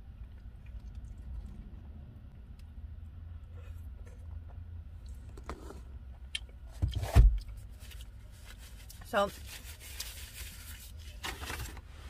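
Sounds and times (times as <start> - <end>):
food handling clicks and rustles: 3.9 - 11.9.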